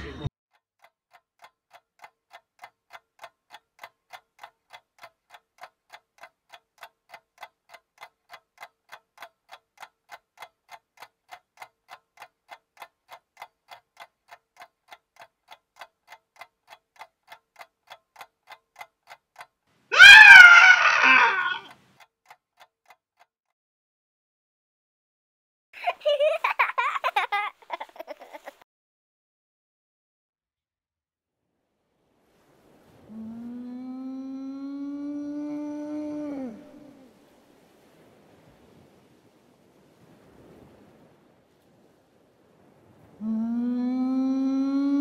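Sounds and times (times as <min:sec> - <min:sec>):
faint steady ticking: 0:00.5 - 0:23.3, 0:25.9 - 0:28.6, 0:32.4 - 0:39.2, 0:40.0 - 0:45.0
high-pitched wavering scream: 0:20.0 - 0:21.7.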